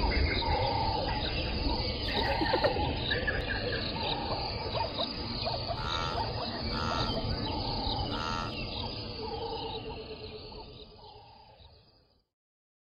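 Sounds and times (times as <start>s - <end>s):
birds calling: 0.0s - 11.7s
frogs calling: 0.0s - 12.1s
insects calling: 0.0s - 12.3s
repeated pitched call: 5.8s - 7.2s, 8.1s - 8.6s.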